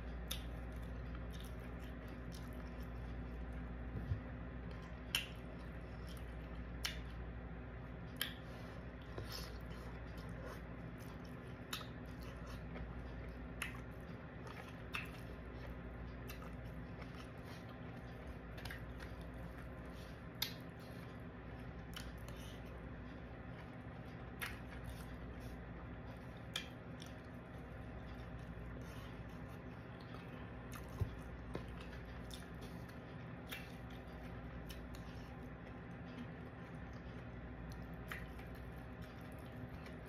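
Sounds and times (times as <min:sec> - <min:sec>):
person chewing: 0:00.0 - 0:40.0.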